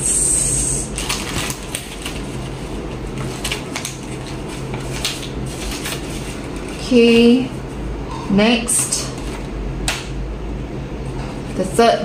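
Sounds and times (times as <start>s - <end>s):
low background hum: 0.0s - 12.0s
paper rustling: 1.0s - 7.8s.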